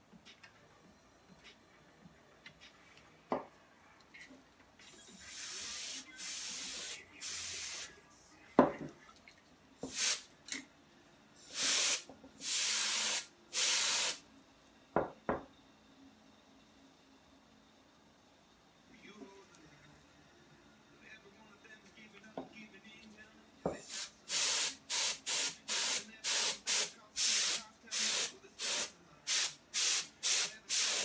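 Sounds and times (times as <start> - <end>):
compressed air hissing: 5.2 - 7.9, 9.8 - 10.3, 11.4 - 14.2, 23.8 - 31.0.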